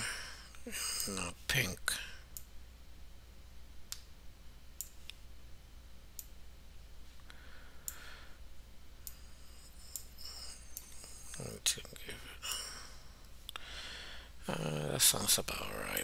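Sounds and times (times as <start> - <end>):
faint low hum: 0.0 - 16.0
computer mouse clicking: 6.2 - 6.4.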